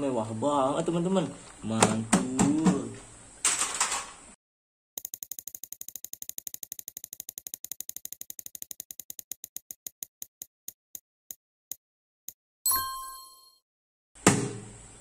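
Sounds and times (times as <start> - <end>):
prize wheel ticking: 5.0 - 10.1.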